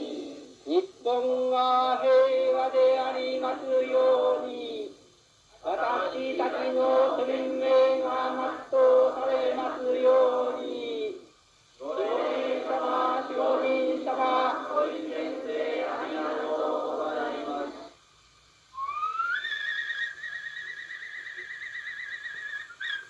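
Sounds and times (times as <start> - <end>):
man chanting a prayer: 0.6 - 5.0.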